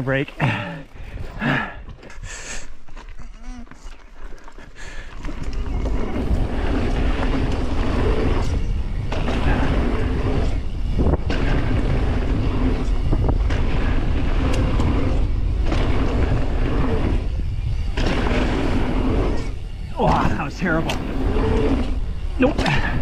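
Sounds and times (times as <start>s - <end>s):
tyres crunching on gravel: 0.0s - 23.0s
wind on microphone: 5.2s - 23.0s.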